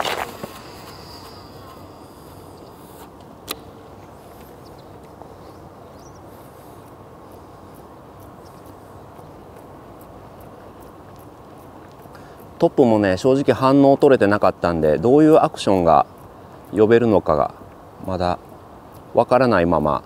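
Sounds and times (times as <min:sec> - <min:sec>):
outdoor background noise: 0:00.0 - 0:20.0
sharp click: 0:02.6 - 0:03.8.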